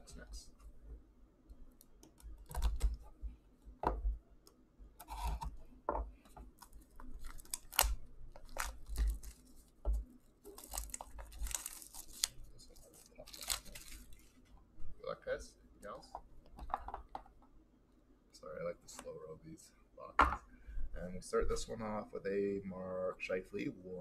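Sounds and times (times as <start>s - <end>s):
plastic wrap crinkling: 6.6s - 14.5s.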